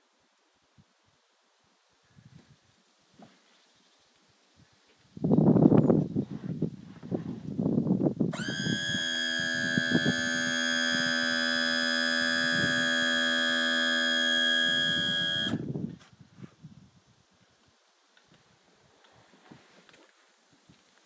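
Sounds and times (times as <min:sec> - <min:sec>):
electronic warning buzzer: 0:08.4 - 0:15.6.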